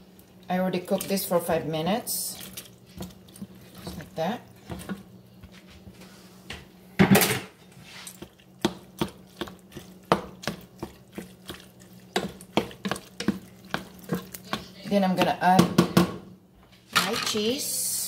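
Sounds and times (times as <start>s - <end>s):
wooden spoon knocking against pot: 8.6s - 11.0s, 12.1s - 16.2s.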